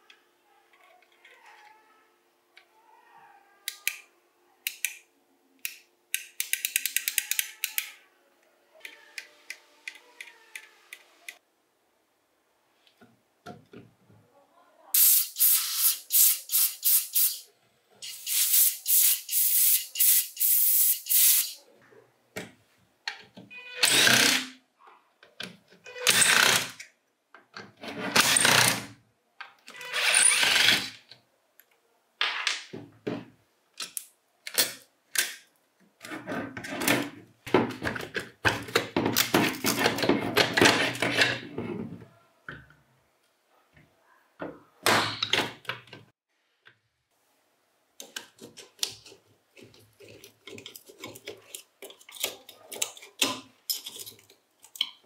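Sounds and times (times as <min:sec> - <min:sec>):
tool scraping: 0:48.3 - 0:54.3.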